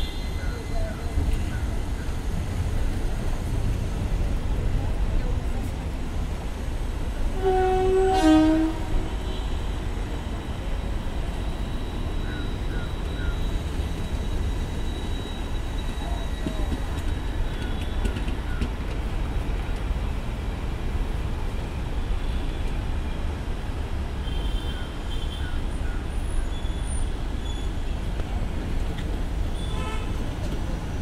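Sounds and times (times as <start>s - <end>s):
train wheels rumbling on rail: 0.0s - 31.0s
train horn: 7.3s - 9.8s, 29.6s - 30.2s
faint wheel squeals: 11.5s - 18.6s, 26.3s - 28.1s.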